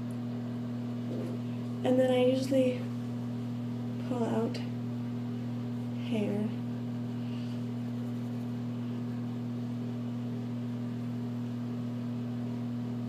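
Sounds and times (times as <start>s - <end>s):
low two-tone hum: 0.0s - 13.0s.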